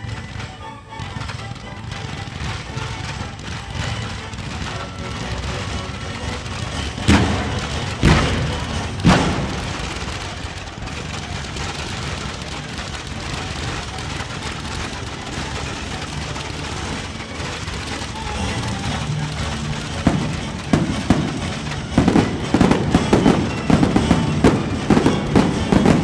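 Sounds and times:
firework shell bursts: 0.0 - 26.0.

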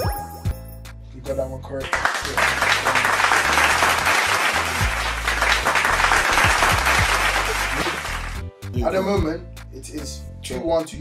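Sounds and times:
background music with bass line: 0.0 - 11.0
crowd applause: 1.8 - 8.4.

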